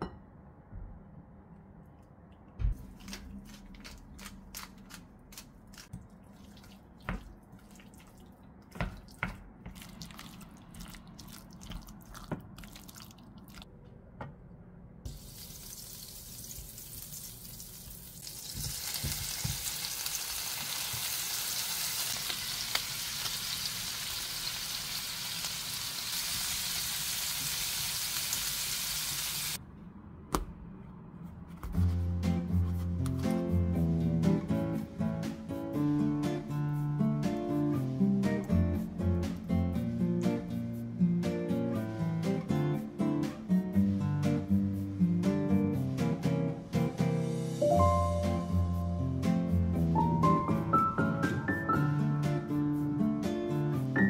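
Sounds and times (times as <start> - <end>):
butter sizzling in frying pan: 15.1 - 29.6.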